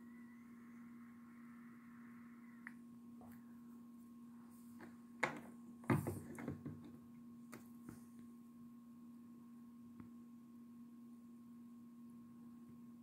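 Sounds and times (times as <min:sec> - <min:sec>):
faint higher tone: 0:00.0 - 0:02.7
electrical hum: 0:00.0 - 0:13.0.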